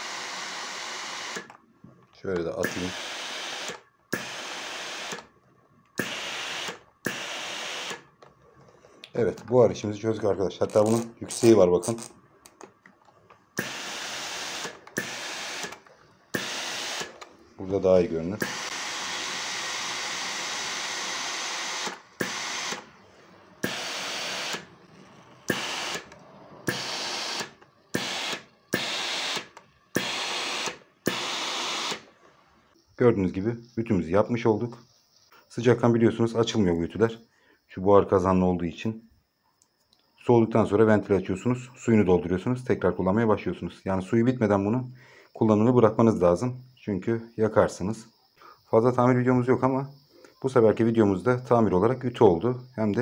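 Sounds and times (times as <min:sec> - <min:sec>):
steam iron hissing bursts: 0:00.0 - 0:01.6, 0:02.6 - 0:05.3, 0:06.0 - 0:08.2, 0:13.6 - 0:32.1.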